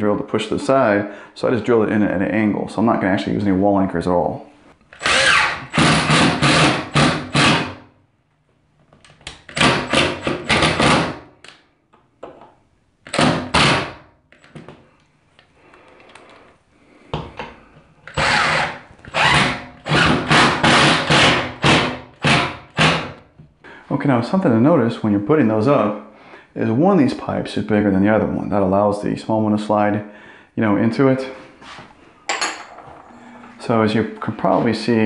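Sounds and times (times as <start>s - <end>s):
cordless drill driving screws: 4.9s - 7.7s, 18.2s - 21.4s.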